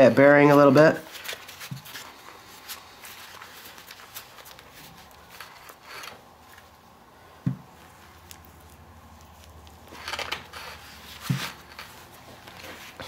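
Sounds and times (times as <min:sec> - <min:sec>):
dull thump: 0:07.4 - 0:07.7.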